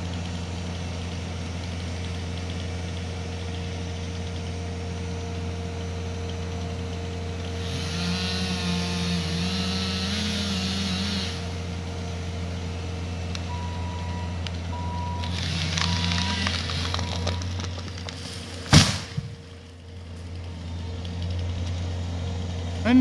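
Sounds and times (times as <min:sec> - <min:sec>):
loader engine running: 0:00.0 - 0:23.0
backup alarm beeping: 0:13.5 - 0:17.4
wood and brush snapping: 0:15.2 - 0:21.8.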